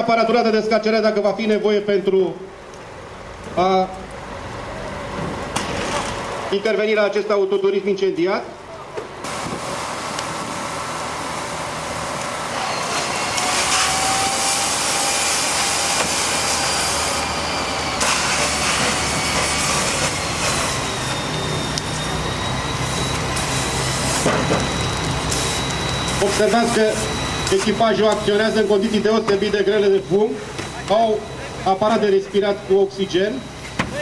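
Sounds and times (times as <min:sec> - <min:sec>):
hose spray hissing: 0:18.0 - 0:20.7.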